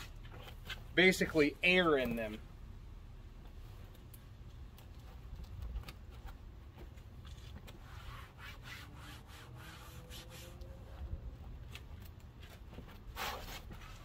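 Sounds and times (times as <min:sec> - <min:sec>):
palms brushing fabric: 0:06.0 - 0:14.0.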